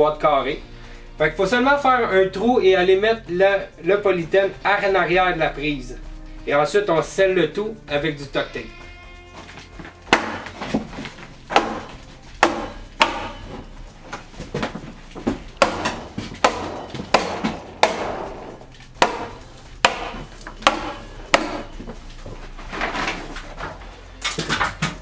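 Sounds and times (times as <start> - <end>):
hammer tacker strikes: 10.1 - 10.8, 11.5 - 22.0.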